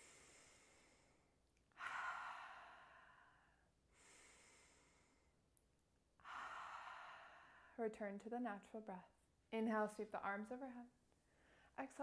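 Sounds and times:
woman breathing out through mouth: 0.0s - 5.3s, 6.2s - 7.8s
woman breathing in through nose: 0.0s - 5.4s, 6.2s - 7.8s.

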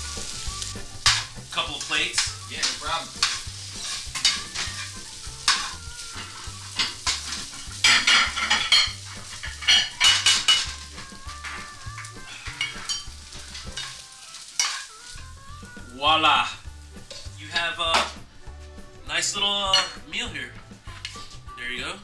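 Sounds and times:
food sizzling in a frying pan: 0.0s - 21.6s
metal tongs scraping a pan: 0.1s - 15.3s, 17.0s - 18.2s
plates clinking: 1.0s - 10.7s, 12.3s - 15.0s.

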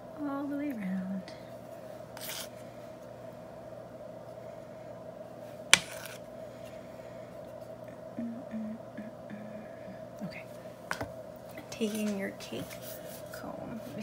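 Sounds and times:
steady low hum: 0.0s - 14.0s
spatula scraping: 2.2s - 2.6s, 5.7s - 6.2s.

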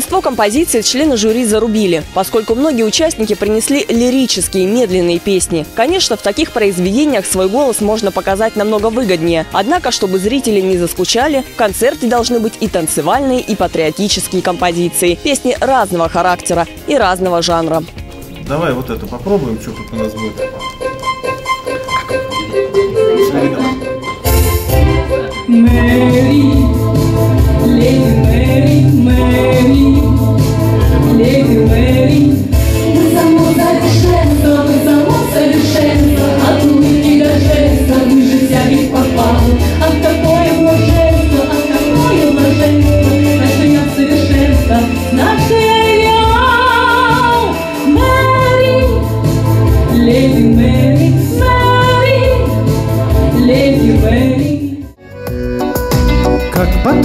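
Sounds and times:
woman singing: 0.0s - 17.9s, 25.3s - 55.0s
instrumental music with bass: 18.0s - 57.0s.

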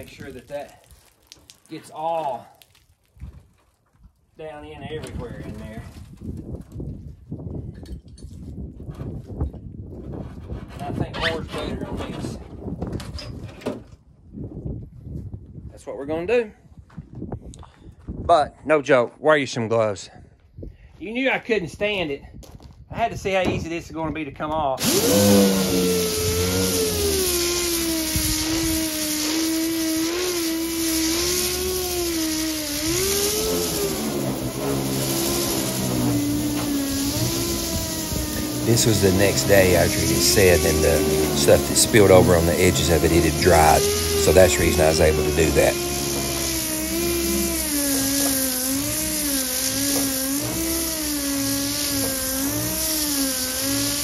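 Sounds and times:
air sander whining on metal: 24.8s - 54.0s
hissing exhaust air: 24.8s - 54.0s.

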